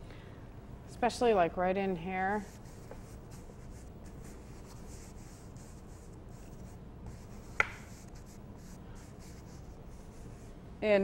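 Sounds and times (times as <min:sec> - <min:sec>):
brush scrubbing paint on canvas: 0:02.3 - 0:10.5.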